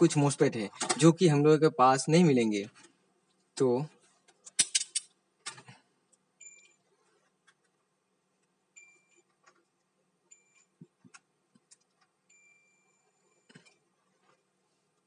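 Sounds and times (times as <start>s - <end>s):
multimeter high beeps: 6.4s - 6.8s, 12.3s - 13.7s.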